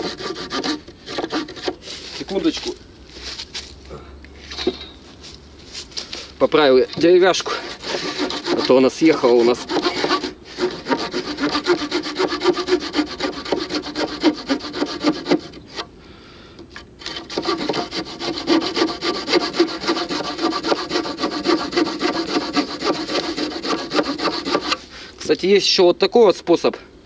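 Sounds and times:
saw blade cutting wood: 0.0 - 2.7, 6.9 - 15.9, 17.0 - 24.9.

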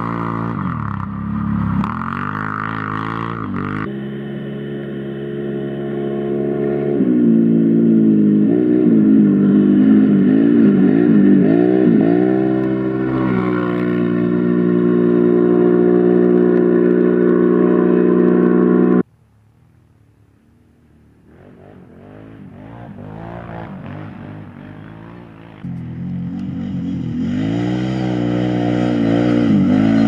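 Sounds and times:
quad engine revving: 0.0 - 19.0, 21.2 - 30.0
faint quad engines revving: 0.0 - 19.1, 20.6 - 30.0.

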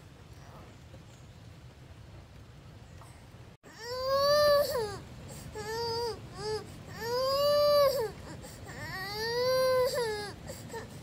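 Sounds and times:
baby crying: 3.8 - 11.0.

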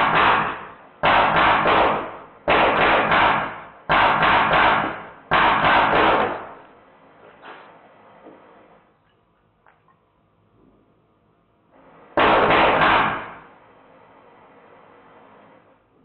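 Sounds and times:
bb gun firing rapid bursts: 0.0 - 6.6, 12.2 - 13.4.

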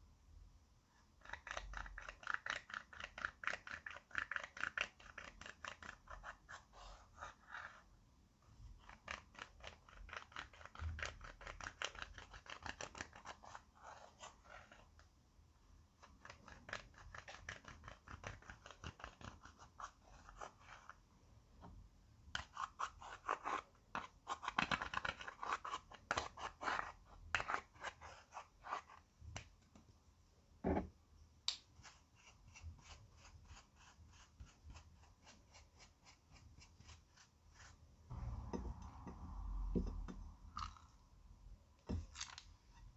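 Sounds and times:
tool scraping powder: 31.7 - 37.8.

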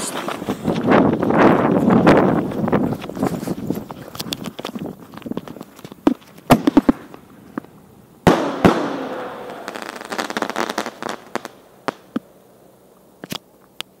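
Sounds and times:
firework crackling: 0.0 - 12.4
firework pops: 4.1 - 7.7, 8.3 - 12.3
loud firework bangs: 6.0 - 7.3, 8.2 - 12.2.

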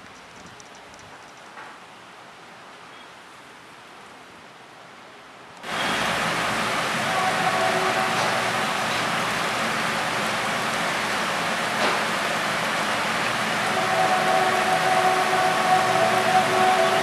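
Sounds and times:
heavy rain pouring: 5.6 - 17.0.

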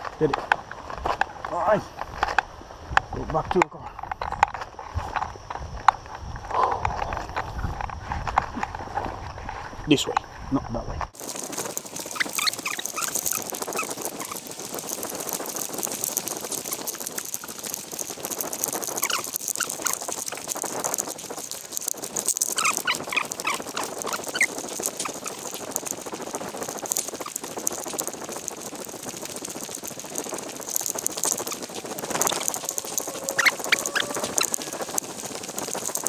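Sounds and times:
footsteps through undergrowth: 11.1 - 36.0
birds chirping: 11.9 - 14.4, 32.0 - 35.0.

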